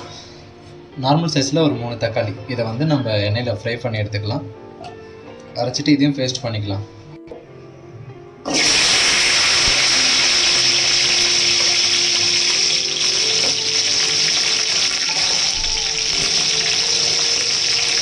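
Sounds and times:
hot oil sizzling: 8.5 - 18.0.

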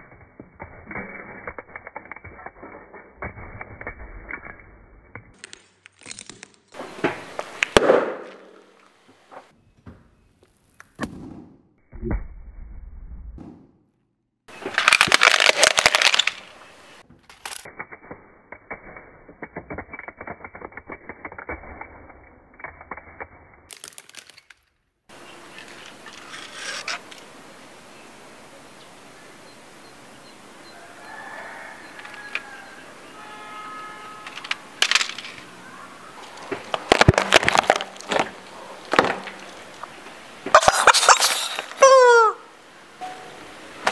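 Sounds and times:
plastic toy car cracking: 5.3 - 6.8, 14.5 - 16.5, 17.2 - 24.8, 25.6 - 27.2, 34.2 - 35.5, 36.2 - 39.9
loud crackling crunch: 5.3 - 9.5, 14.5 - 18.2, 22.6 - 27.3, 34.2 - 41.9.

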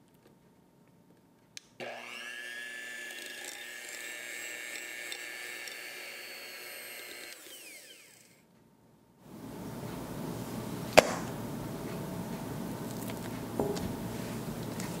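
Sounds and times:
electric hand mixer whirring: 1.8 - 8.4.

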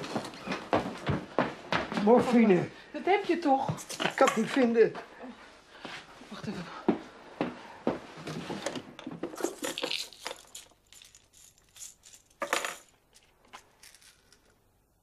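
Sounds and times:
pill bottle rattling: 9.3 - 14.6
pill bottle twisted open: 9.4 - 12.4.

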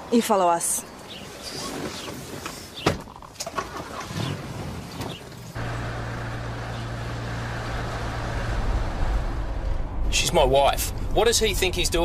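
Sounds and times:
vehicle engine running: 5.6 - 10.2.

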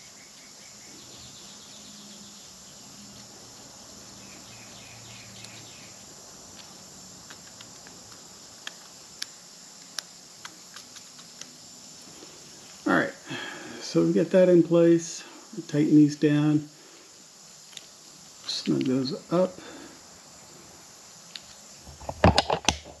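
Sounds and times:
room hiss: 0.0 - 23.0
faint high chirping: 4.0 - 6.1.

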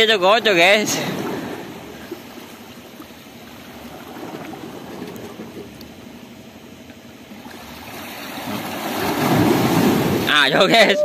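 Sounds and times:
sea waves lapping against rocks: 0.8 - 6.1, 7.4 - 10.5.

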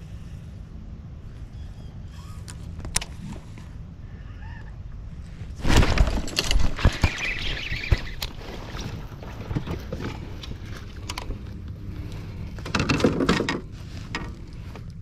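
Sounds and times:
rustling: 5.3 - 15.0.

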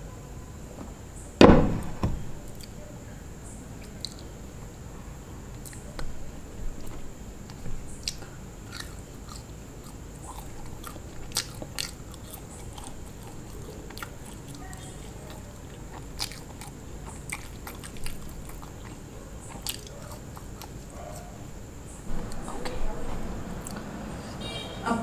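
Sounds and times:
person chewing fries: 6.8 - 21.4.

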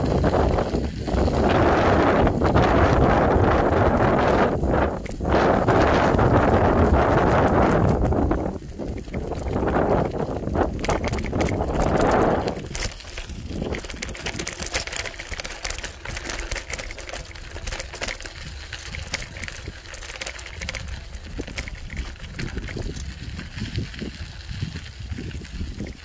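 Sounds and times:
bicycle tyres crunching on gravel: 0.0 - 26.0
wind on microphone: 0.0 - 26.0.

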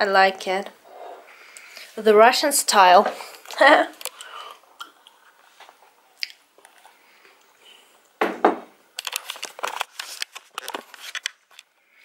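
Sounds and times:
camera handling noise: 9.0 - 11.7.

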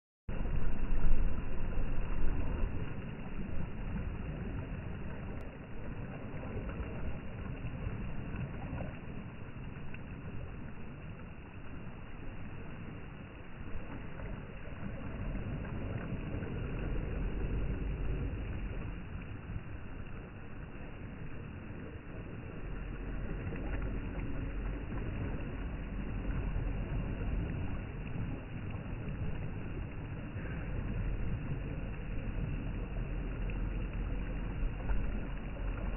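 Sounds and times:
wind rumbling on microphone: 0.3 - 35.9
small waves washing onto sand: 0.4 - 35.9.

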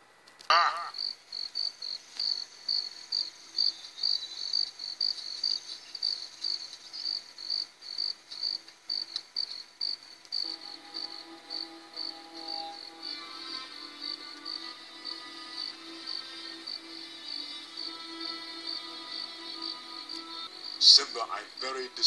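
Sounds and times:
crickets chirping: 0.7 - 22.0
soft music: 10.4 - 22.0.

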